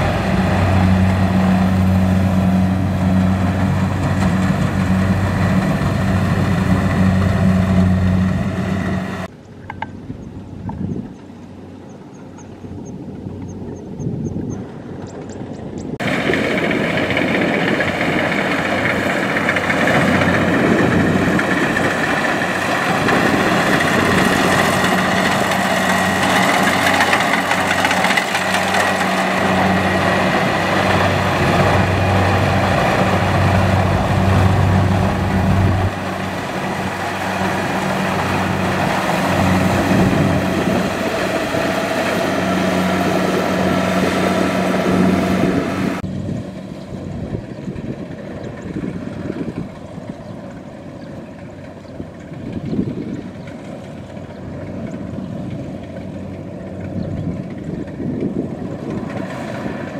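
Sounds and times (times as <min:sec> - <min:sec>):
combine harvester running: 0:00.0 - 0:09.8, 0:16.0 - 0:59.9.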